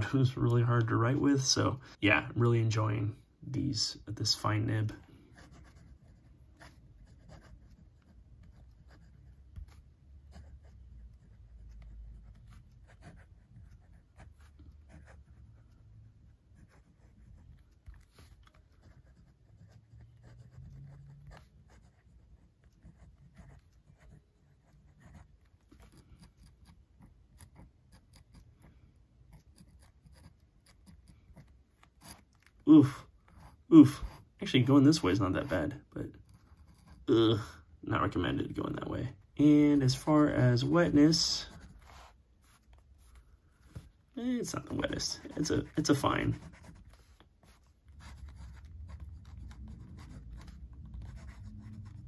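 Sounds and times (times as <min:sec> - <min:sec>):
fountain pen scratching paper: 0:05.1 - 0:34.8, 0:35.4 - 0:37.1, 0:44.5 - 0:52.0.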